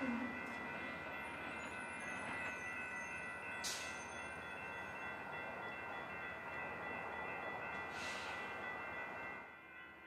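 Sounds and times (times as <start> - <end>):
train rumble: 0.0 - 10.0
warning bells ringing: 0.0 - 10.0.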